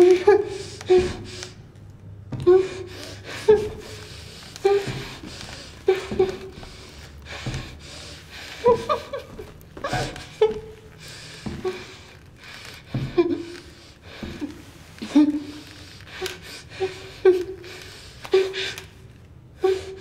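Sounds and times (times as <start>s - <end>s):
woman whimpering and gasping: 2.4s - 18.9s, 19.6s - 20.0s.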